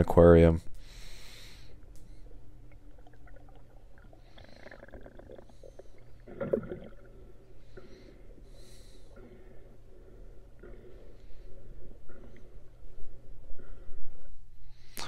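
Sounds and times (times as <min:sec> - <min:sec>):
low underwater hum: 0:00.0 - 0:15.0
faint clicks: 0:01.8 - 0:02.3
water gurgling: 0:02.2 - 0:09.6.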